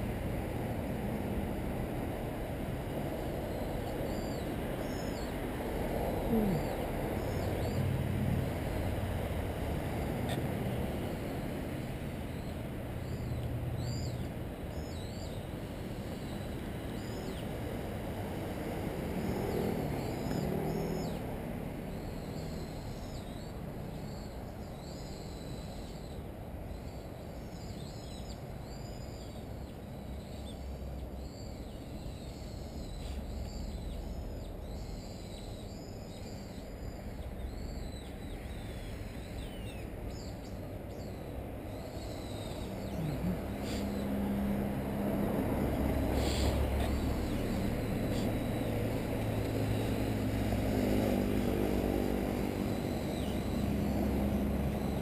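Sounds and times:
city traffic rumble: 0.0 - 55.0
small birds chirping: 3.4 - 7.9, 8.5 - 18.3, 19.1 - 21.3, 21.9 - 55.0
vehicle passing: 4.6 - 12.2, 16.7 - 22.0, 42.2 - 55.0.

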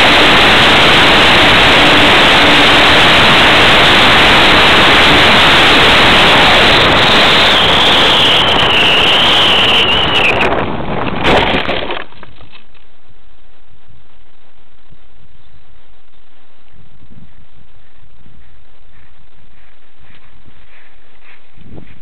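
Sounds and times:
rushing airflow: 0.0 - 12.1
high whine: 0.0 - 22.0.

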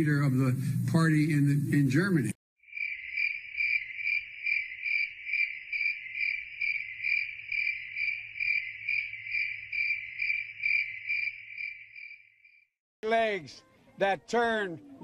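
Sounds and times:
crickets chirping: 2.6 - 12.7.

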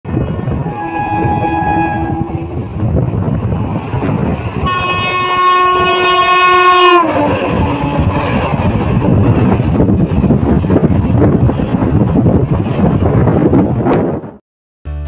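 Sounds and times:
train coaches rumbling past: 0.1 - 14.4
train horn blast: 0.6 - 2.7, 4.6 - 8.4.

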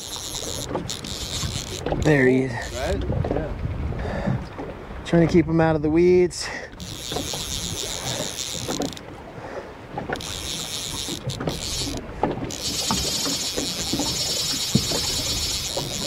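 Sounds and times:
fishing reel drag buzzing: 0.0 - 3.0, 6.7 - 9.0, 10.0 - 16.0
wind on microphone: 0.0 - 6.0
water lapping against boat: 0.0 - 16.0.

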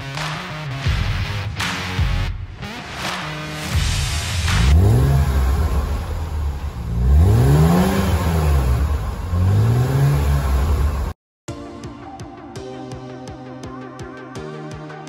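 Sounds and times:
car engine revving: 2.9 - 11.2.

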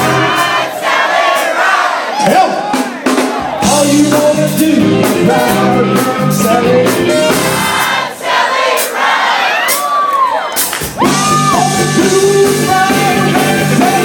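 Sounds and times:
drum kit: 0.0 - 14.0
man singing into a microphone: 3.6 - 7.5, 11.5 - 14.0.

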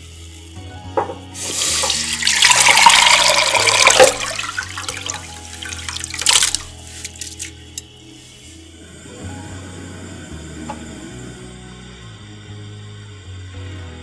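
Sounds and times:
rice splashing into water: 1.4 - 7.6
water splashing into a pot: 1.4 - 7.6.

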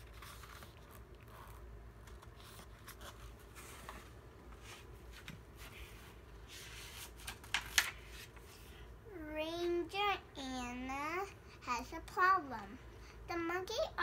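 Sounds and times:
book pages rustling: 0.0 - 8.7.

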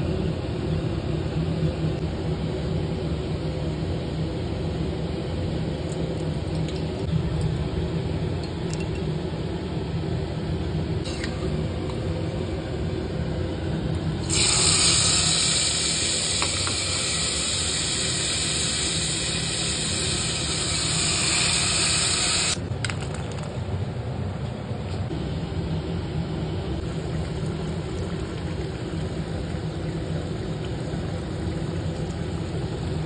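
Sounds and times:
low steady hum: 0.0 - 33.0
loud steady hiss: 14.2 - 22.6.

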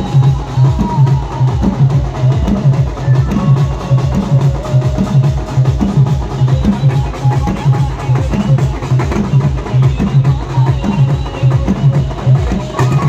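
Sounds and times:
drums beating fast rhythm: 0.0 - 13.0.

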